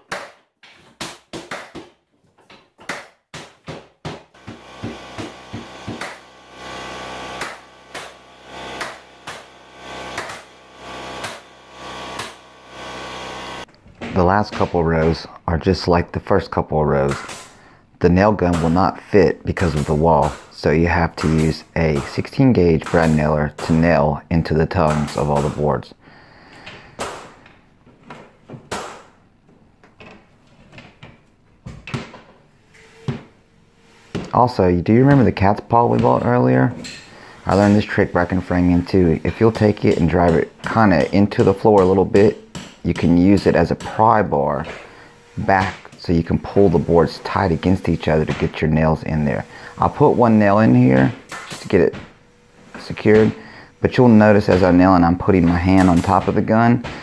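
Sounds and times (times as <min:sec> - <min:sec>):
hammer knocking on floorboards: 0:00.0 - 0:06.2
floor nailer sharp knocks: 0:00.0 - 0:15.2, 0:17.1 - 0:17.6, 0:28.6 - 0:29.2, 0:35.1 - 0:48.5, 0:49.4 - 0:53.5, 0:54.4 - 0:57.0.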